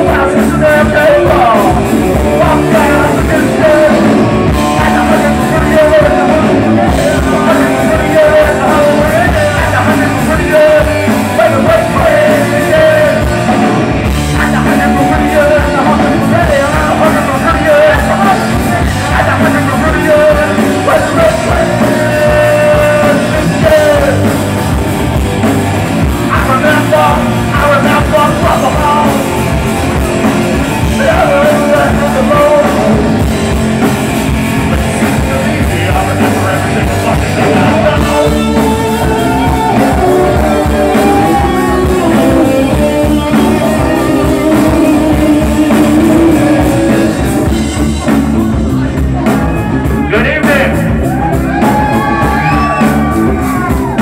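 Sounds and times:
wailing harmonica lead: 0.0 - 25.1, 35.4 - 47.4, 51.0 - 54.0
live rock band playing: 0.0 - 54.0.

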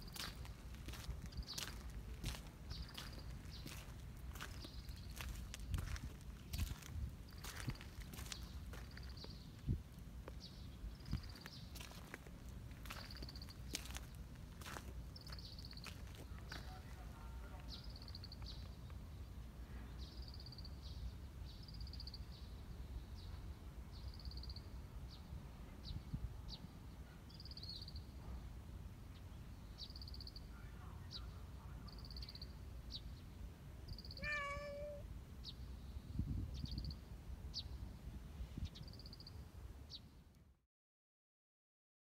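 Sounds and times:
cat meowing: 34.2 - 35.0.

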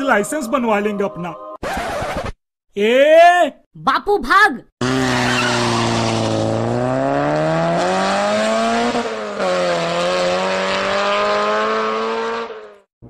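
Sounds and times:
cartoon vehicle engine speeding off: 4.8 - 12.9.

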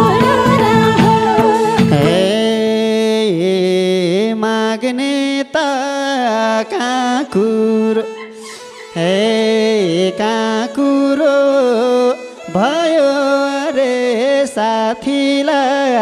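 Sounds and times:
band instruments: 0.0 - 2.6
man singing into a microphone: 0.0 - 16.0.

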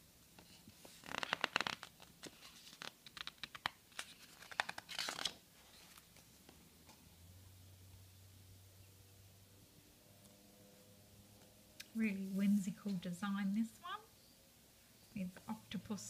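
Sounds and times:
paper pages rustling: 0.4 - 6.3.

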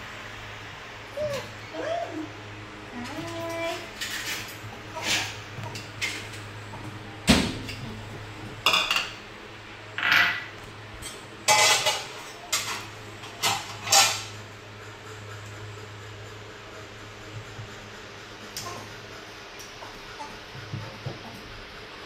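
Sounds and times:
steady low hum: 0.0 - 22.0
clinks and clatters of dishes: 3.1 - 6.4, 8.6 - 9.2, 10.0 - 14.4.

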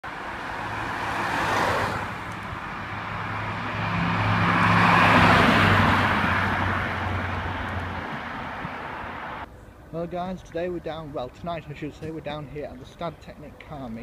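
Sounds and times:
car passing on wet road: 0.0 - 9.4
van driving past: 0.0 - 9.5.

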